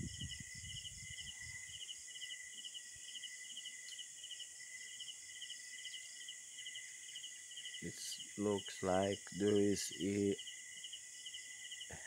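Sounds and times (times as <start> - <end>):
crickets trilling: 0.0 - 12.0
high-pitched insect drone: 0.0 - 12.0.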